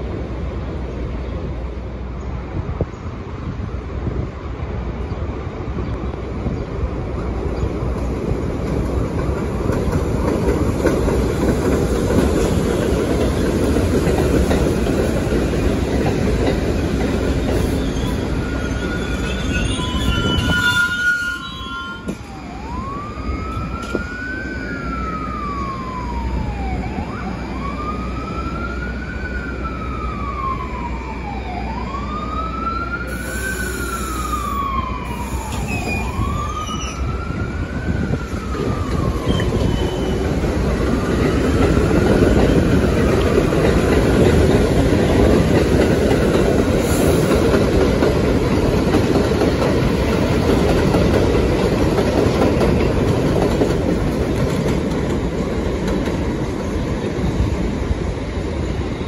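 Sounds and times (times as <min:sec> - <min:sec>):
standing train hum: 0:00.0 - 0:59.0
subway train rumbling: 0:00.0 - 0:59.0
wheels and brakes squealing: 0:17.4 - 0:22.5, 0:35.1 - 0:37.1, 0:39.2 - 0:40.3
siren wailing: 0:20.2 - 0:40.2.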